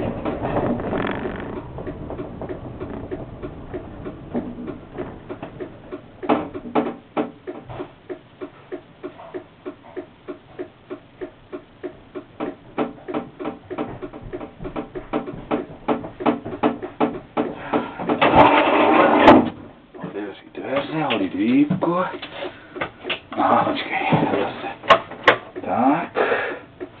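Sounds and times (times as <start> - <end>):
steady mechanical ticking: 0.0 - 18.0, 24.8 - 27.0.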